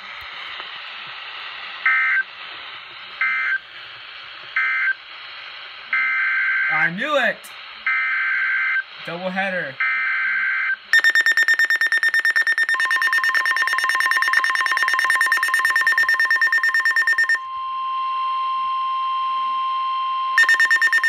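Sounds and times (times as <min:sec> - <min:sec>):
steady alarm tone: 0:09.8 - 0:21.0
rapid pulsing electronic beep: 0:10.9 - 0:17.4, 0:20.4 - 0:21.0.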